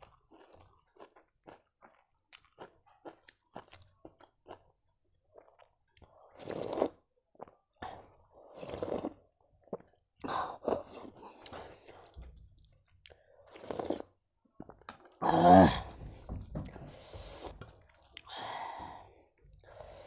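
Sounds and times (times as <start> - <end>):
loud slurps of soup: 6.2 - 7.0, 8.4 - 9.2, 13.5 - 14.2.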